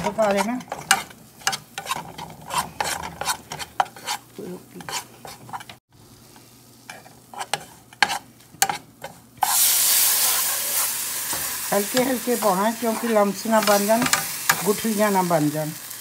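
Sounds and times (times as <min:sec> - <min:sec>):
metal spoon scraping saucepan: 0:00.0 - 0:05.8
loud sizzle: 0:05.9 - 0:08.5, 0:09.3 - 0:16.0.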